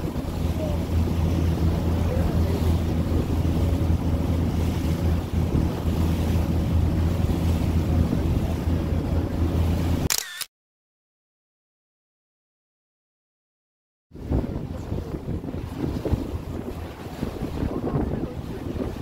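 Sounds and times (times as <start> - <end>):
ferry engine droning: 0.0 - 10.0
wind buffeting microphone: 0.0 - 10.0, 14.1 - 19.0
water rushing along hull: 0.0 - 10.1, 14.1 - 19.0.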